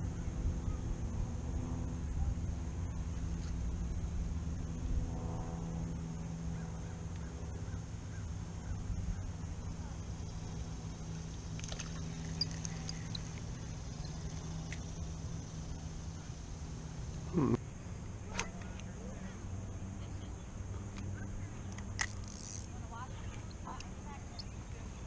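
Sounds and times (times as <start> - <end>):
low wind rumble on microphone: 0.0 - 17.2
high steady hiss: 5.7 - 25.0.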